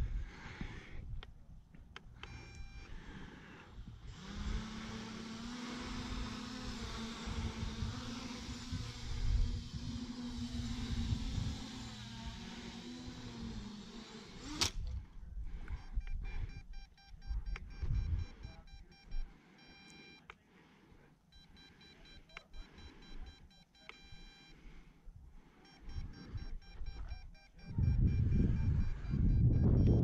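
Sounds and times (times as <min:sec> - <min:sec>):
engine running: 0:02.2 - 0:14.9
electronic beeps: 0:02.3 - 0:02.9, 0:15.8 - 0:20.3, 0:21.3 - 0:24.6, 0:25.6 - 0:30.0.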